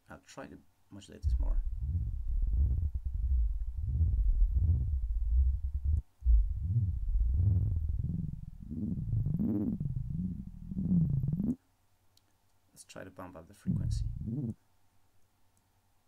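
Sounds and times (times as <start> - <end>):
synthesizer bubbling gurgle: 6.4 - 11.6, 13.7 - 14.6.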